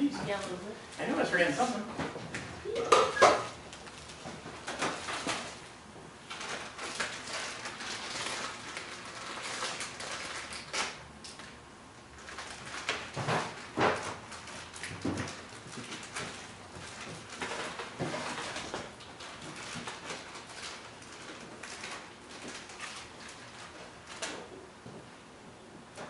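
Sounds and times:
utensils and cookware knocking: 0:02.7 - 0:03.5
plastic bag crinkling: 0:06.3 - 0:11.5, 0:12.2 - 0:24.5.

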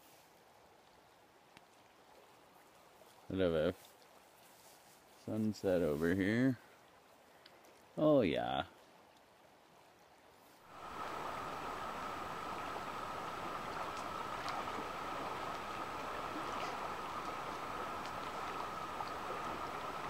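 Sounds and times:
faint ticks: 0:07.4 - 0:07.8.

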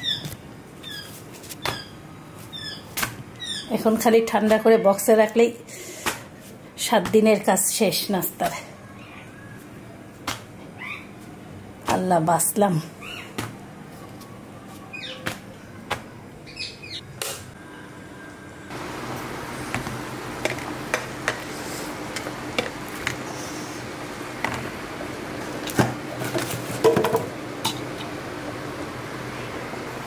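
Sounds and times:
steady low hum: 0:05.6 - 0:30.0.

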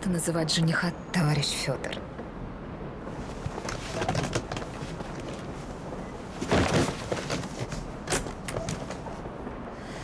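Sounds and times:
suitcase knocks and scrapes: 0:06.4 - 0:09.0.

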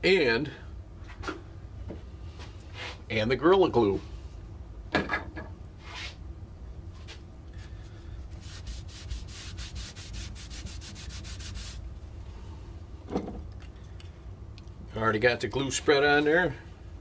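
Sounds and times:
paper towel rubbing on wood: 0:08.3 - 0:11.8.

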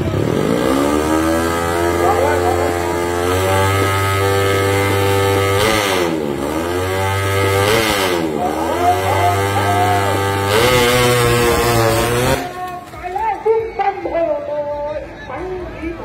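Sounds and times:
motorcycle engine revving hard: 0:00.0 - 0:12.6.

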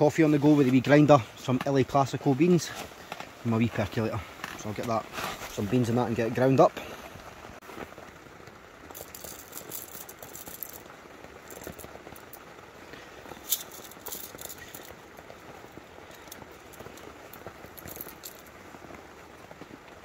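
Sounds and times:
hand coffee grinder crackling: 0:08.9 - 0:12.4, 0:13.3 - 0:18.5.

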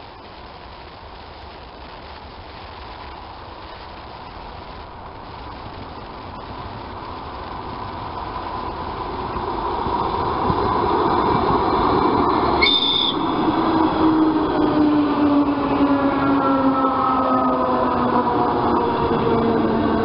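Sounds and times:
faint steady whine: 0:00.0 - 0:14.7
electric train running past: 0:06.2 - 0:20.0
lower whine falling in pitch: 0:11.1 - 0:20.0.

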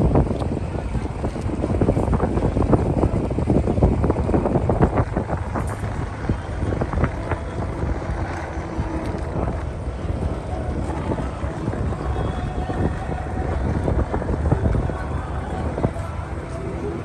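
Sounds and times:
boat engine running: 0:00.0 - 0:17.0
wind buffeting microphone: 0:00.0 - 0:17.0.

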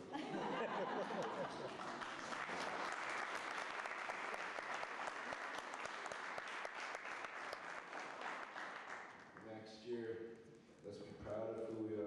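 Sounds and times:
audience applauding: 0:00.7 - 0:09.4.

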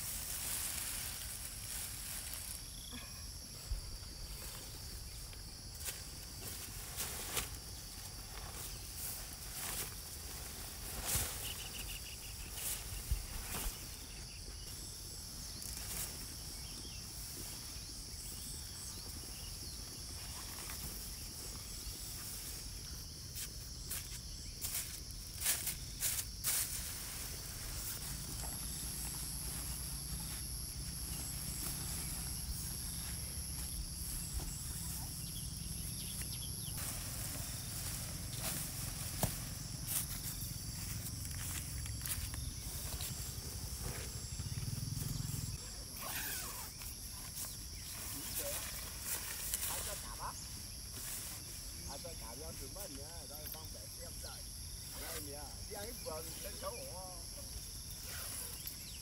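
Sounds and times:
higher insect tone: 0:00.0 - 0:59.0
high-pitched insect drone: 0:11.1 - 0:59.0.

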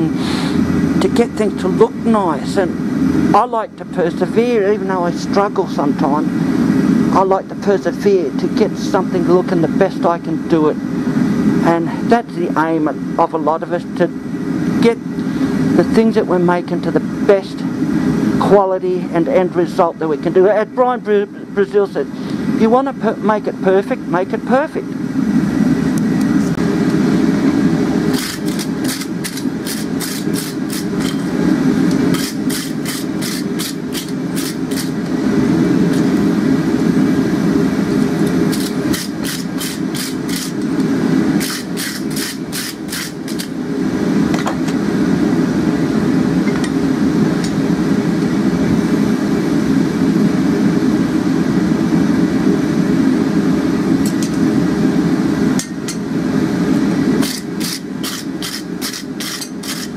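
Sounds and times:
gas forge burner roaring: 0:00.0 - 0:59.9
wire brush scrubbing steel: 0:28.1 - 0:31.3, 0:32.1 - 0:35.1, 0:38.5 - 0:40.7, 0:41.4 - 0:43.6, 0:57.2 - 0:59.9.

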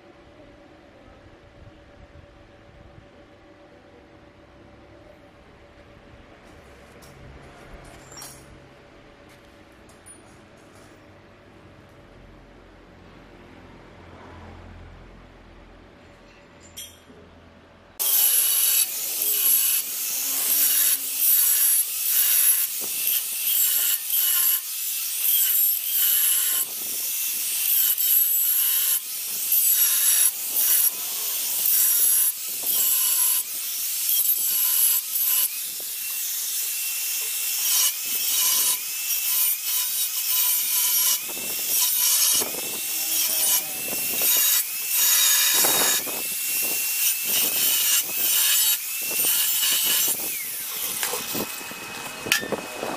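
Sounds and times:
angle grinder scraping metal: 0:18.0 - 0:52.9
grinder motor whine: 0:18.0 - 0:52.9.

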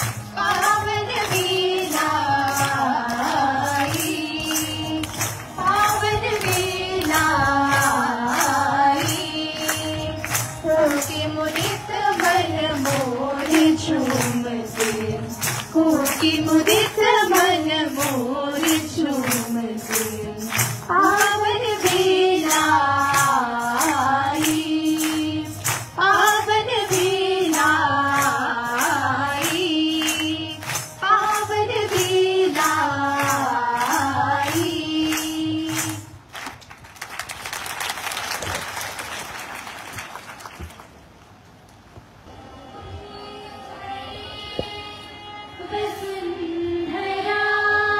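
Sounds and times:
voices singing over percussion: 0:00.0 - 0:36.4, 0:42.3 - 0:47.9
applause: 0:00.0 - 0:41.4.

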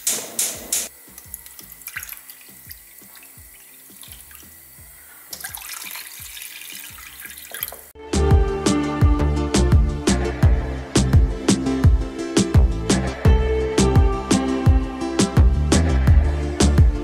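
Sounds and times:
liquid pouring into a pan: 0:01.3 - 0:04.5, 0:05.2 - 0:07.9
music with a beat: 0:08.0 - 0:17.0.

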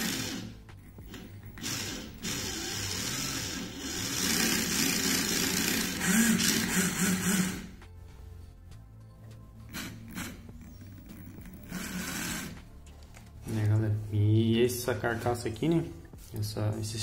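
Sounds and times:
small electric motor whirring: 0:00.0 - 0:07.7, 0:09.7 - 0:12.6.

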